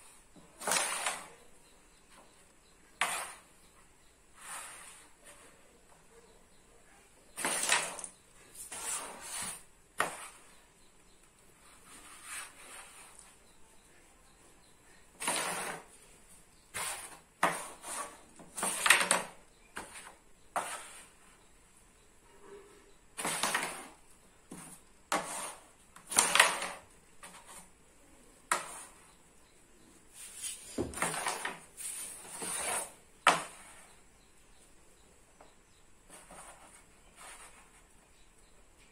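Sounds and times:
striker scraping on board: 0.6s - 1.3s, 3.0s - 3.5s, 7.4s - 10.4s, 15.2s - 16.0s, 16.7s - 21.1s, 23.2s - 27.6s, 30.5s - 33.8s
coins knocking wooden frame: 7.4s - 8.3s, 18.4s - 20.0s, 26.0s - 27.4s.

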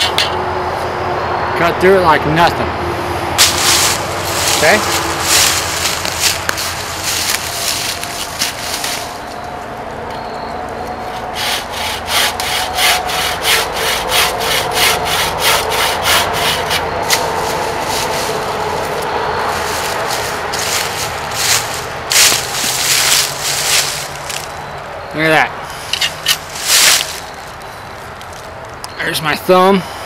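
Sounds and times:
bucksaw cutting wood: 3.4s - 9.2s, 11.0s - 19.0s, 19.6s - 24.4s.

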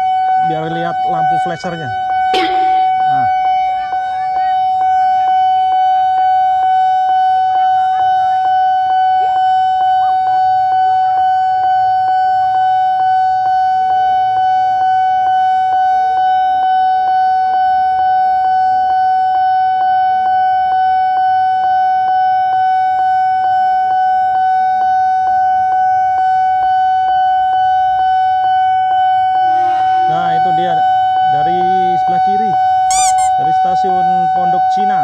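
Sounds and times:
faint public address announcement: 0.0s - 6.4s
level crossing bell dinging: 2.4s - 3.6s.

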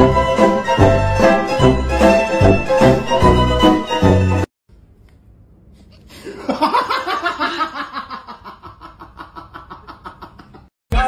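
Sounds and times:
person laughing hard: 6.2s - 10.7s.

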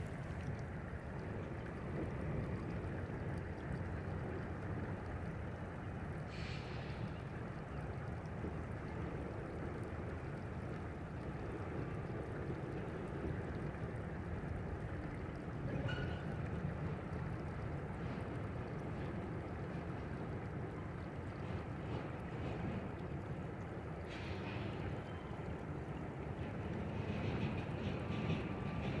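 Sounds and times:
train rumbling over bridge: 0.0s - 29.0s
brief hiss: 6.3s - 7.0s.

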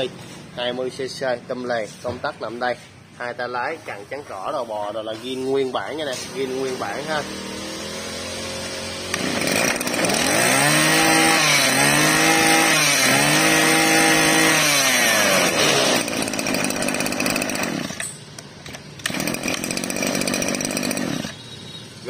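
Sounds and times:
brush-cutter engine revving: 4.9s - 21.6s.

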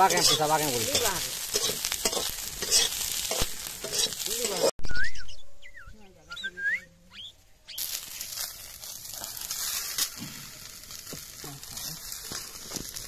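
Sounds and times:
hot oil sizzling in a pan: 0.0s - 4.7s, 7.8s - 13.0s
bird whistling song notes: 4.8s - 7.8s.

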